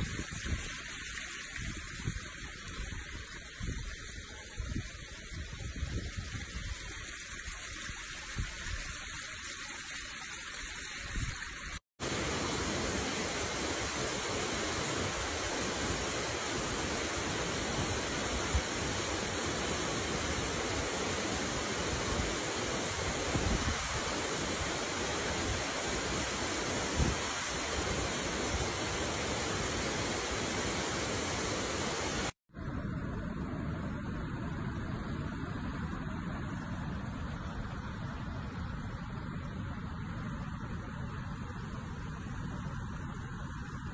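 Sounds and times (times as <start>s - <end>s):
uneven outdoor noise: 0.0s - 43.9s
waterfall rushing: 12.0s - 32.4s.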